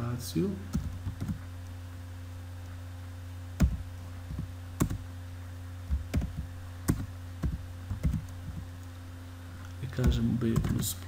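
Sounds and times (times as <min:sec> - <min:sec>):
steady low hum: 0:00.0 - 0:11.0
keyboard keystrokes: 0:03.6 - 0:05.0, 0:05.9 - 0:08.7, 0:10.0 - 0:10.8.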